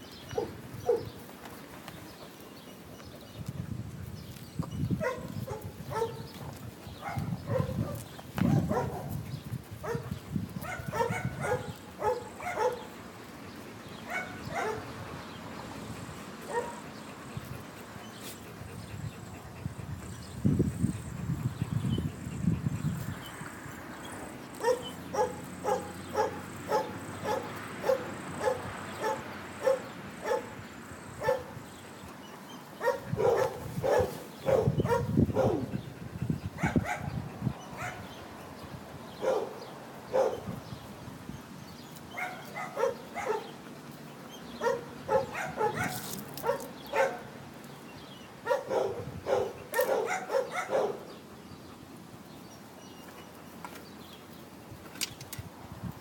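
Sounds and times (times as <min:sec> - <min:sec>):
dog barking: 0:00.4 - 0:01.1, 0:05.0 - 0:06.3, 0:07.0 - 0:09.2, 0:09.8 - 0:12.9, 0:14.1 - 0:14.9, 0:16.5 - 0:16.8, 0:24.6 - 0:30.5, 0:31.2 - 0:31.5, 0:32.8 - 0:35.7, 0:36.6 - 0:37.1, 0:37.8 - 0:38.1, 0:39.2 - 0:40.5, 0:42.2 - 0:43.5, 0:44.6 - 0:47.3, 0:48.4 - 0:51.1.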